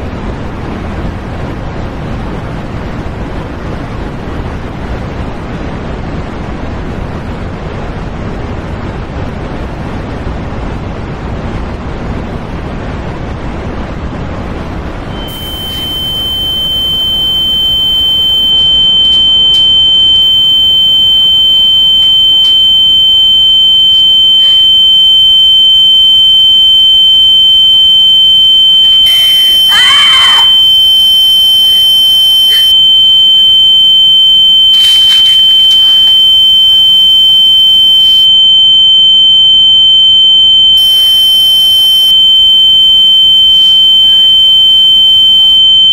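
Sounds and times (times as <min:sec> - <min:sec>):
high-pitched ringing tone: 0:15.0 - 0:45.9.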